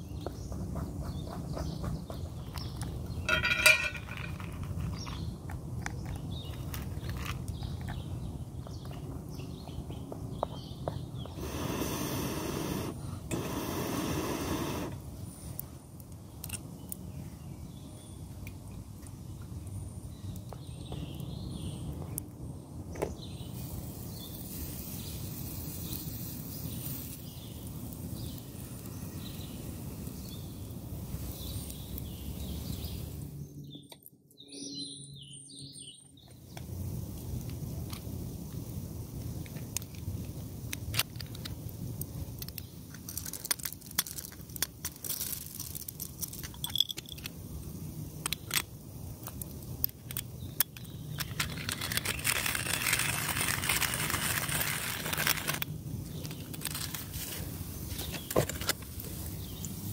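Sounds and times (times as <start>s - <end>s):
birds chirping: 0.0s - 4.2s, 4.9s - 15.6s, 50.3s - 53.0s
metal cookware clinking and scraping: 3.3s - 4.4s.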